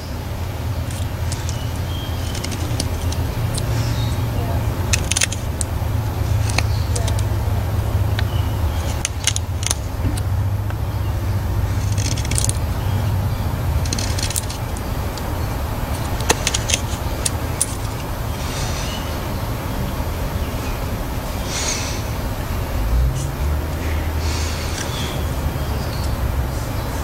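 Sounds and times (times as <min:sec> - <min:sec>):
steady low rumble: 0:00.0 - 0:27.0.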